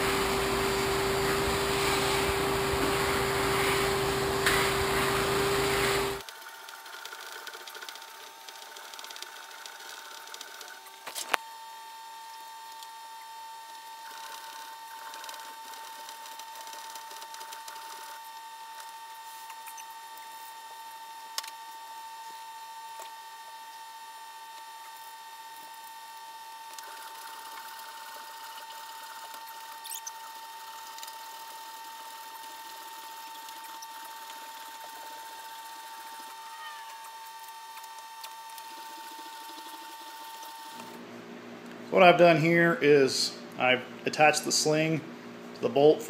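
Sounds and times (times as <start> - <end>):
high-pitched electronic whine: 10.7 - 41.0.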